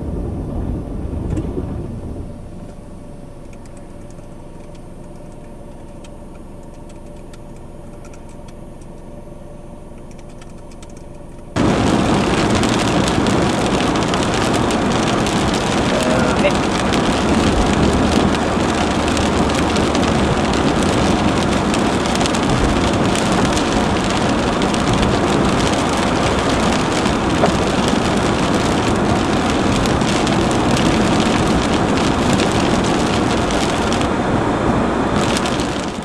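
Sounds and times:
tyre and road noise: 0.0s - 9.2s, 9.8s - 36.0s
heavy rain on car roof: 10.1s - 36.0s.

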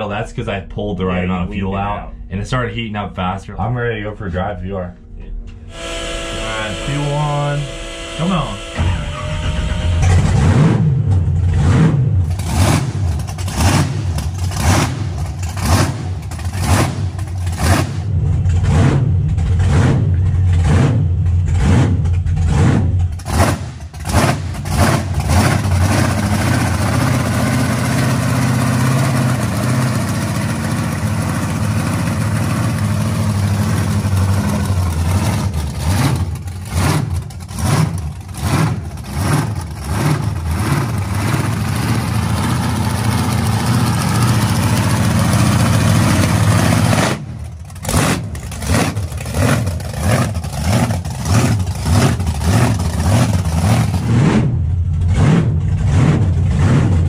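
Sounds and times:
car engine idling loudly: 5.7s - 57.0s.

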